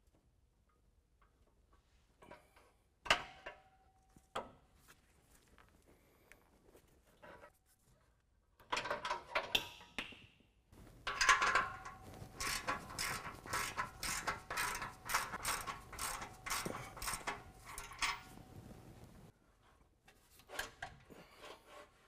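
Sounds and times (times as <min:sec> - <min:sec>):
hand ratchet clicking: 0:11.1 - 0:18.3.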